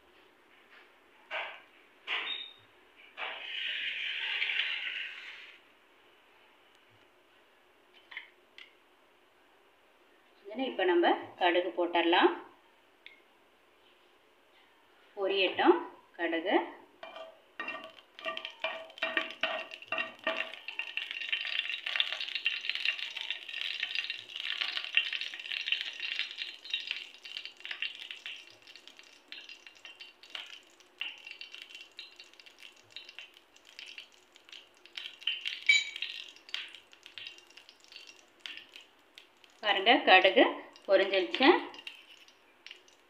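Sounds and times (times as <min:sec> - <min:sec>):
mustard seeds popping in hot oil: 0:17.0 - 0:39.9, 0:40.6 - 0:43.0.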